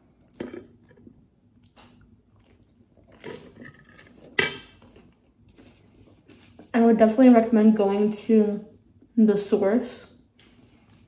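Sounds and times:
biting and chewing: 0:00.1 - 0:05.2.

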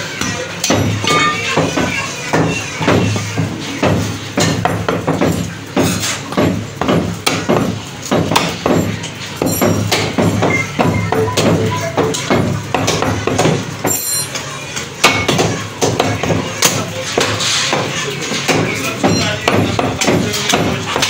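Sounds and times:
meat cleaver chopping on wood: 0:03.8 - 0:09.0, 0:15.0 - 0:21.0.

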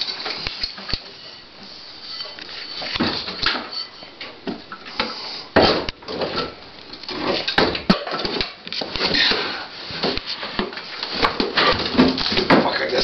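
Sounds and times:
metal clanking and scraping: 0:02.0 - 0:04.4.

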